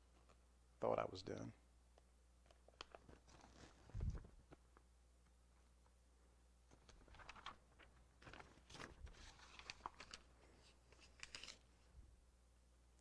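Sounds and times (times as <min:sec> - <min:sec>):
paper rustling: 0:02.8 - 0:04.8, 0:06.7 - 0:11.8.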